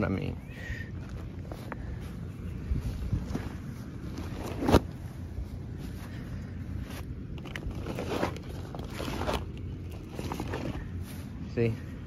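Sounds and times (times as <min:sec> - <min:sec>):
low steady rumble: 0:00.0 - 0:12.0
tarp rustling and swishing: 0:07.5 - 0:11.2.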